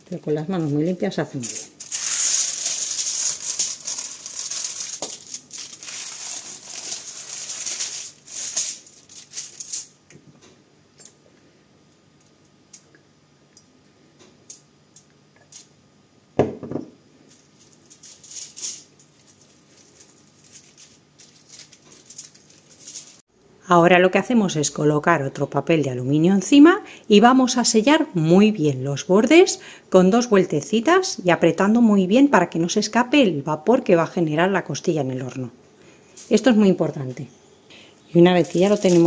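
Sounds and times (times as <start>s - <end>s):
aluminium foil crinkling: 0.2s - 10.0s, 14.5s - 15.7s, 17.3s - 23.2s, 38.1s - 39.0s.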